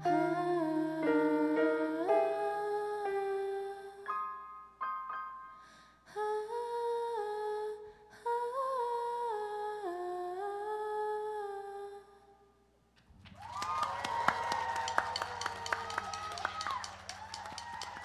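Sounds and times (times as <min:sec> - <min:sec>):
applause and cheering: 0:13.2 - 0:18.0.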